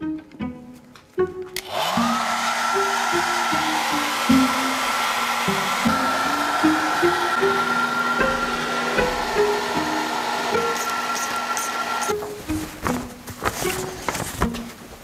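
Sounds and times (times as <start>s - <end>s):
hot-air blower motor whine: 1.6s - 12.4s.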